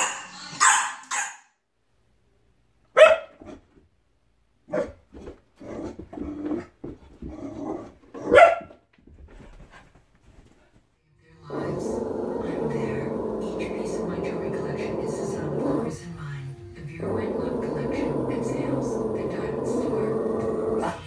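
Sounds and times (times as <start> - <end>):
dog barking: 0.0 - 1.5, 2.9 - 3.6, 4.7 - 5.0, 8.2 - 8.8.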